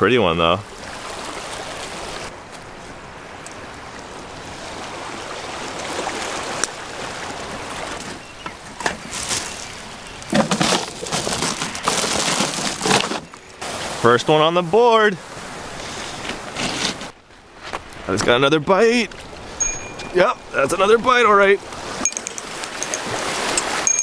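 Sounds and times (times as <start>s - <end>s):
small waves washing among rocks: 3.1s - 17.2s, 21.6s - 23.9s
fish clattering into ice cooler: 10.3s - 13.4s.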